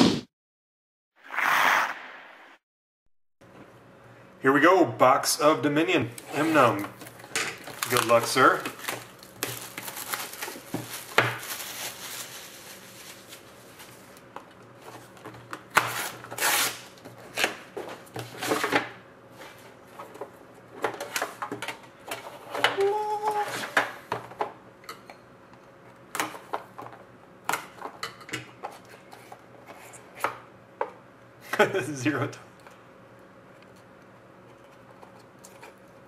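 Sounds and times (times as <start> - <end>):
plastic shrink-wrap crinkling: 7.0 - 14.3.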